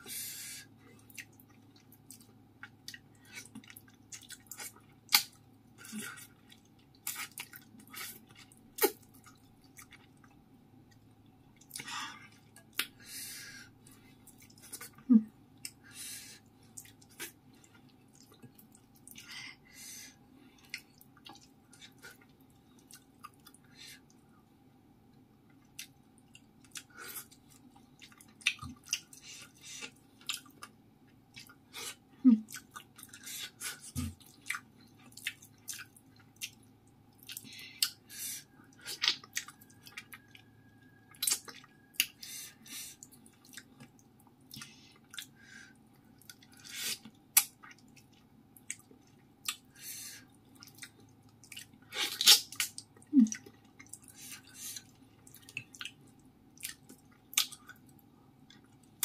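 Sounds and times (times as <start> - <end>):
wet chewing and lip smacks: 1.0 - 5.4, 6.1 - 13.0, 25.5 - 31.6, 32.5 - 59.0.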